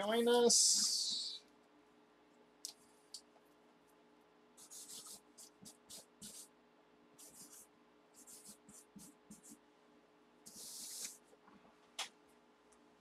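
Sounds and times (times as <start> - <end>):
marker scratching on cardboard: 4.6 - 6.5, 7.2 - 9.6, 10.5 - 11.2.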